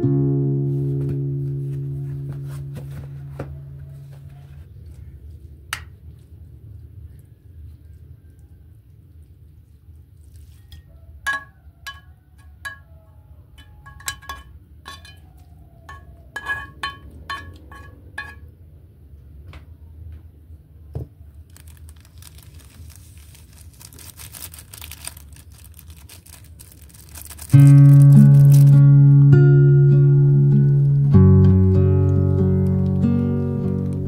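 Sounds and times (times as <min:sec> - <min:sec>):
pan knocking on ceramic bowl: 0:11.3 - 0:15.2, 0:15.9 - 0:18.4
foil sachet crinkling: 0:21.3 - 0:28.9.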